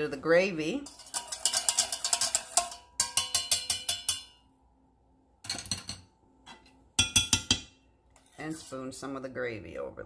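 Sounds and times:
whisk clinking against pan: 0.8 - 4.4.

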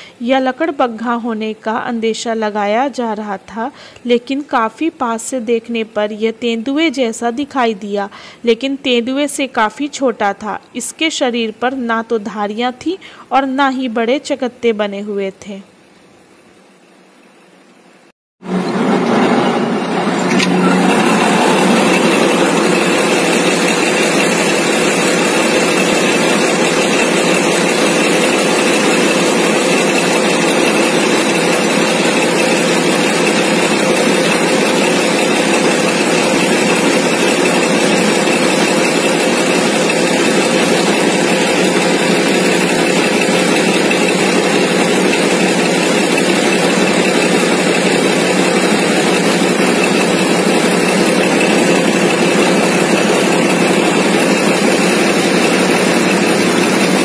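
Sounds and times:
heavy machinery drone: 18.4 - 57.0.

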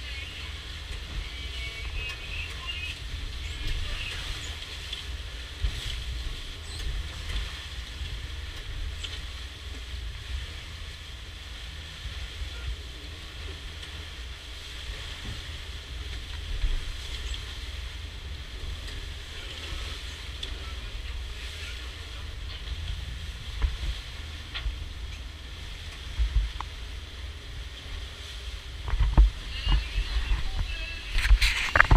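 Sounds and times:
boat wake rushing and hissing: 0.0 - 31.9
wind buffeting microphone: 0.0 - 31.9.

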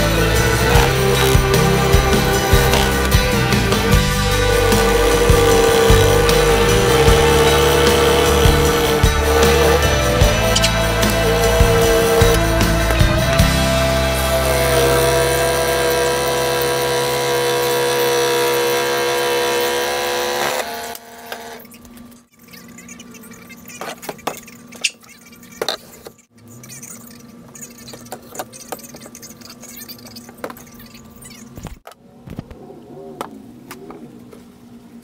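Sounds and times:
background music: 0.0 - 19.5.

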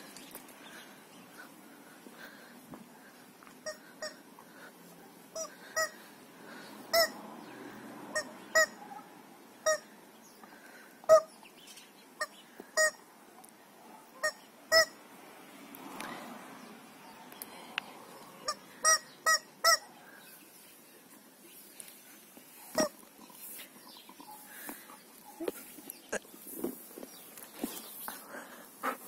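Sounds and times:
rubber dog toy squeaking: 6.9 - 7.2, 8.2 - 8.8, 14.2 - 15.0, 18.8 - 19.8, 22.8 - 23.0.

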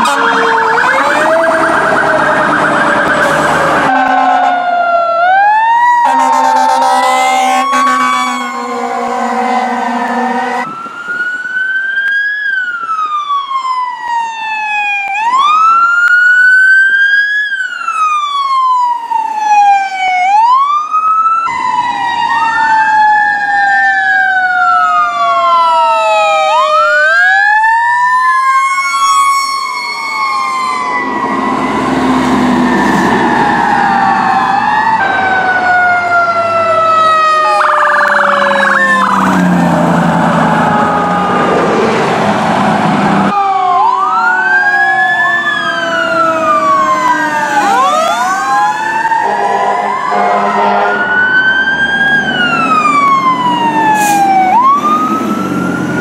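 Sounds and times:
fire engine sirens wailing: 0.0 - 56.0
heavy truck engine rumble: 38.1 - 43.3.

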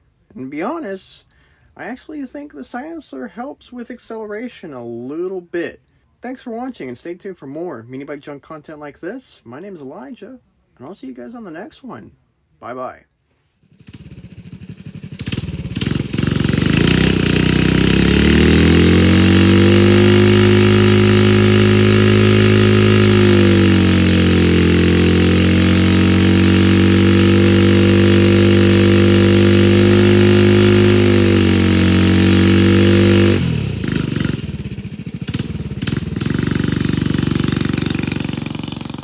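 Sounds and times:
mini bike engine revving: 13.6 - 39.0
wheel spinning in dirt: 13.6 - 39.0.

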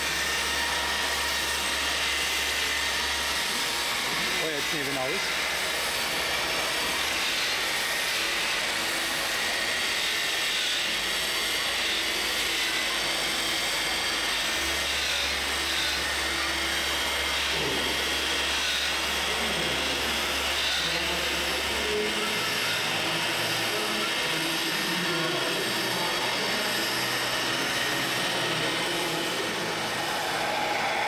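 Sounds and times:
small electric motors whining: 0.0 - 31.0
steady background noise: 14.8 - 31.0.

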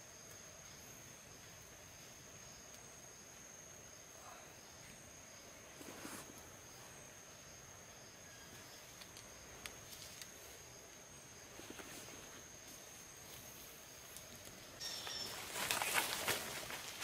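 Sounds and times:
high insect drone: 0.0 - 17.0
rustling leaves and brush: 4.8 - 17.0
faint clicks and rustles: 8.5 - 17.0.

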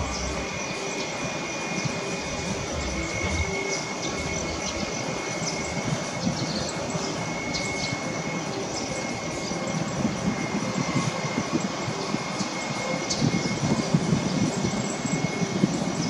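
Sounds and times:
jet engines rumbling: 0.0 - 16.0
thin steady whine: 0.0 - 16.0.

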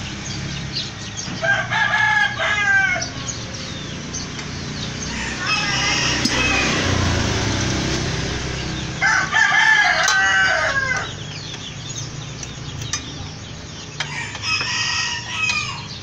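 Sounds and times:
rooster crowing: 1.4 - 3.4, 5.0 - 7.4, 8.9 - 11.2, 14.0 - 16.0.

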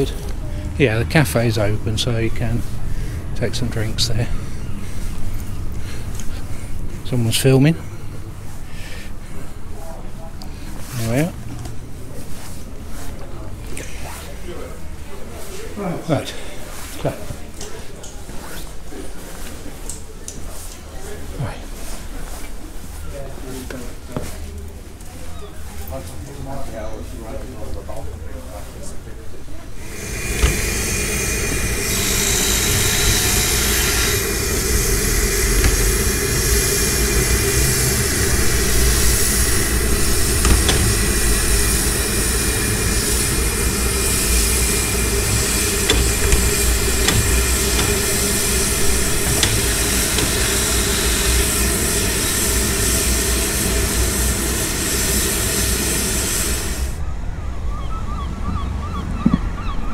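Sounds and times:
steam locomotive hissing steam: 0.0 - 9.8, 10.5 - 11.4, 29.7 - 57.0
low rumble of locomotive moving: 29.6 - 59.2.

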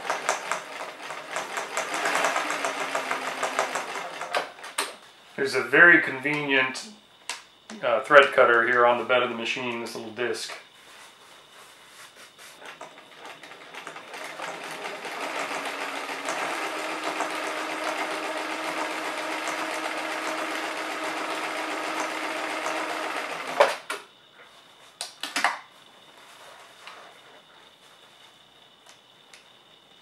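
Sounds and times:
sewing machine stitching: 0.0 - 4.6, 12.8 - 23.8.

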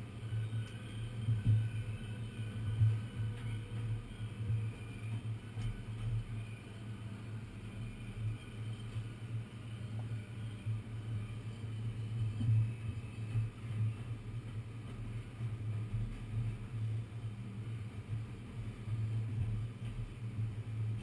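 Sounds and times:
subway car rumble and hum: 0.0 - 21.0.

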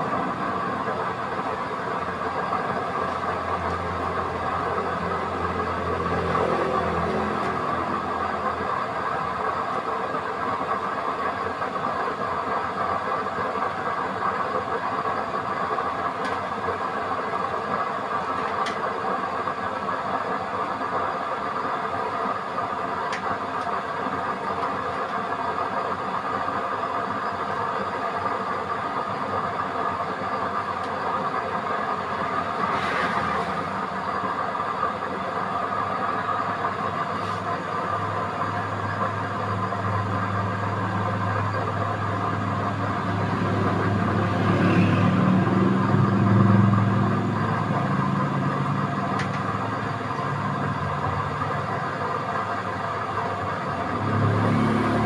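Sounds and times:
blower fan whirring: 0.0 - 55.0
flame rushing: 32.6 - 33.8.

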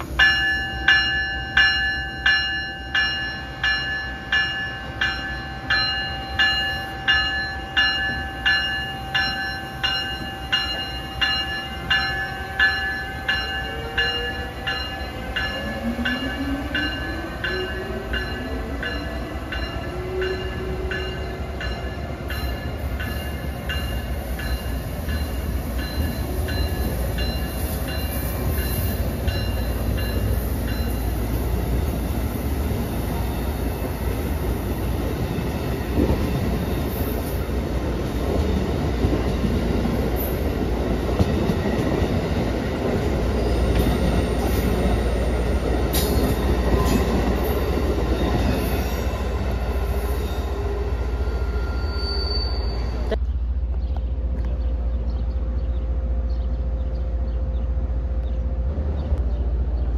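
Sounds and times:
rumble of train wheels on rail: 0.0 - 59.9
faint wheel squeal: 51.3 - 53.2.

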